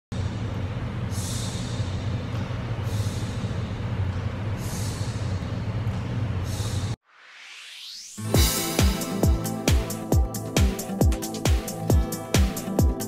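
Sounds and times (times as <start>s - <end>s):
low droning bass: 8.2s - 13.0s.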